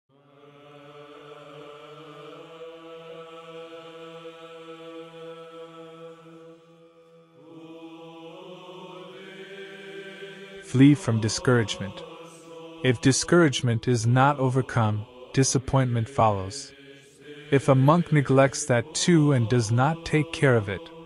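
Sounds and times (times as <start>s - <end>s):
chant of held notes: 0.1s - 21.0s.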